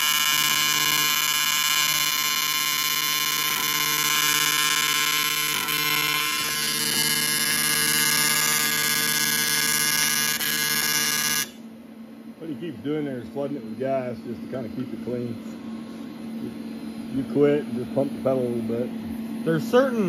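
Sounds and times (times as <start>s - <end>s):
welding arc buzzing: 0.0s - 11.7s.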